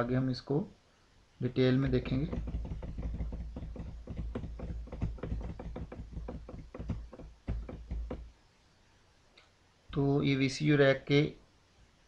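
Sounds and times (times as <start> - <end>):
rapid irregular clicking: 1.8 - 8.3.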